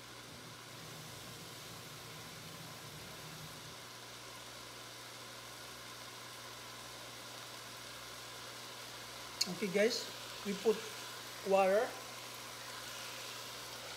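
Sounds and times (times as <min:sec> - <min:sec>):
food sizzling in a pot: 0:00.0 - 0:13.9.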